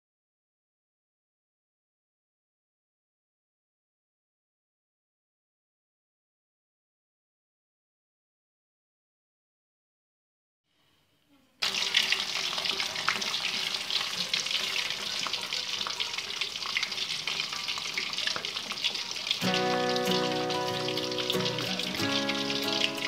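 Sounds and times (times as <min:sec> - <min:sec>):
fish sizzling in hot oil: 0:11.6 - 0:23.0
background music: 0:19.4 - 0:23.0.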